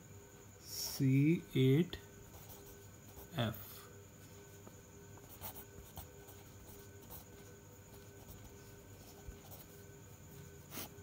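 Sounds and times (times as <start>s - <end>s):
pen scratching on paper: 5.2s - 9.8s, 10.6s - 11.0s.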